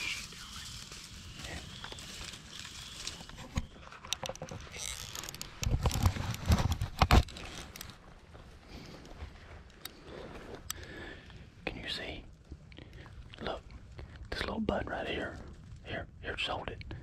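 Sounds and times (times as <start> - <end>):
camera handling rustling and clicks: 3.1 - 8.0.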